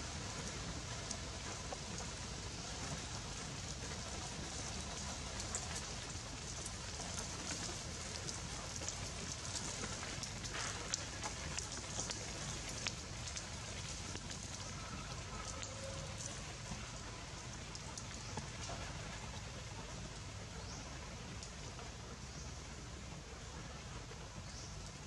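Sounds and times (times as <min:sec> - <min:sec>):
outdoor background hiss: 0:00.0 - 0:25.0
scattered clicks and crackles: 0:00.4 - 0:19.5.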